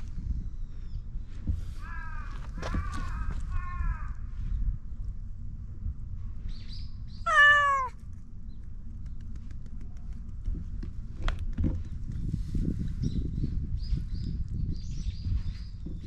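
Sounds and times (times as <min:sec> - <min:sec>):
cat meowing: 0:07.3 - 0:08.0.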